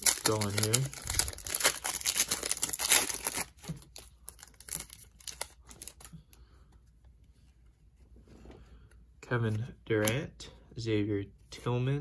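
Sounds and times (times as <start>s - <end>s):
foil pack crinkling and tearing: 0.0s - 6.1s.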